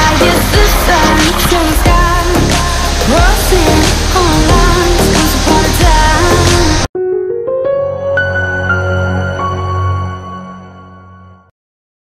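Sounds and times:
loud pop-rock song: 0.0 - 6.9
soft keyboard music: 0.0 - 11.5.

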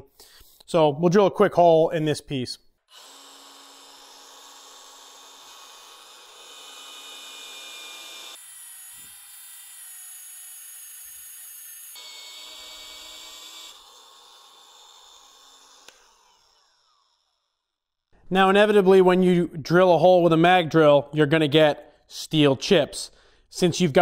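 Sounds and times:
magnetic drill cutting steel: 2.9 - 17.6.

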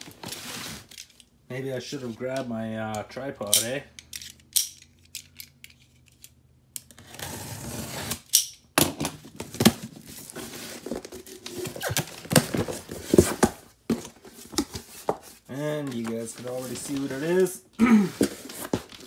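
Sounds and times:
box cutter slitting tape: 6.8 - 8.6.

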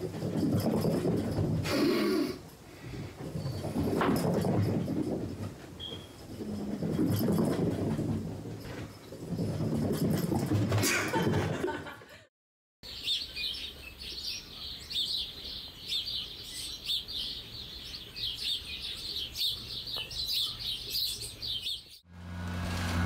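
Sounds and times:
birds chirping: 12.8 - 22.0.

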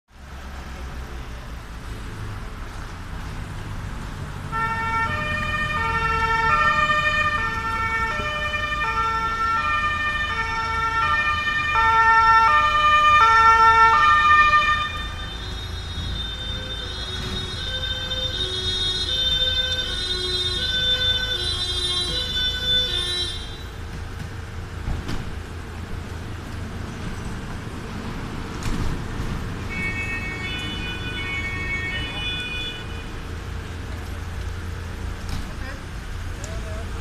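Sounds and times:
vehicle engines rumbling: 0.1 - 37.0
police two-tone sirens: 4.5 - 23.9, 29.6 - 33.0.

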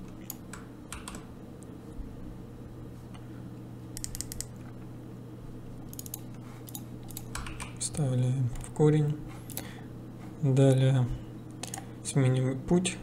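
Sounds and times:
keyboard and mouse clicks: 0.0 - 1.3, 4.0 - 4.6, 5.9 - 7.8, 11.6 - 11.8
low electrical hum: 0.0 - 13.0.

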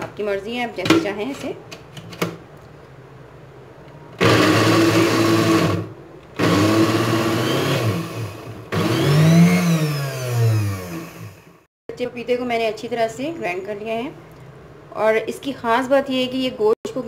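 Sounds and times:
mixer grinder chopping: 4.2 - 11.6.

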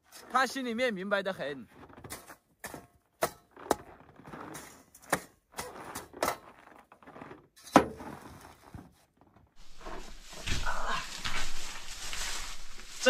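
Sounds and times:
rustling: 8.0 - 13.0.

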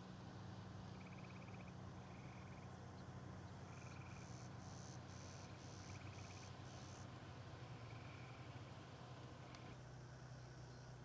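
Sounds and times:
low steady hum: 0.0 - 11.0
frog trilling: 1.0 - 2.7.

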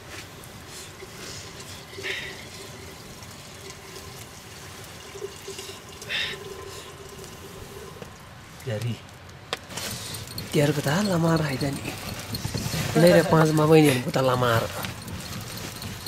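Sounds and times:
liquid pouring through metal strainer: 0.9 - 8.0.

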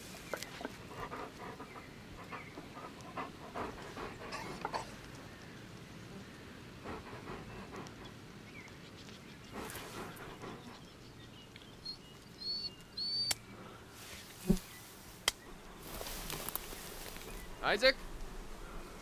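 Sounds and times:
rustling in grass: 0.0 - 0.9, 13.6 - 19.0
high bird chirps: 11.6 - 13.4.

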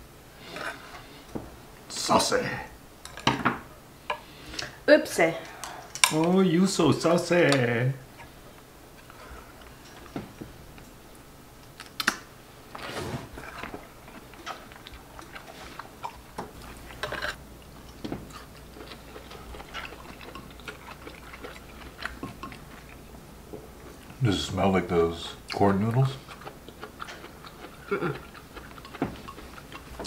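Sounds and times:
soft chewing: 11.6 - 24.2, 25.4 - 30.0
chopsticks clicking on bowls: 28.6 - 30.0.

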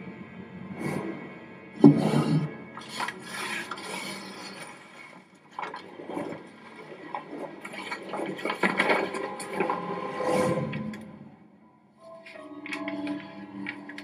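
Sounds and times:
scraping and rubbing noises: 1.8 - 11.2.

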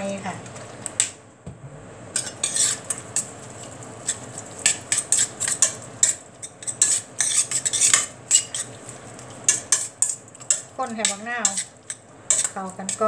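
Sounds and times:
metal spoon scraping a pot: 2.2 - 8.8, 9.5 - 13.0.

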